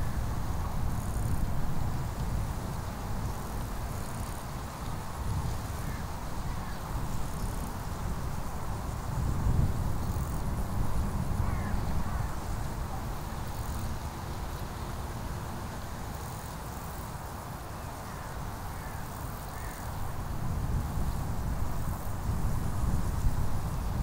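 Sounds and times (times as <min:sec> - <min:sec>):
faint bird calls: 0:18.0 - 0:19.9.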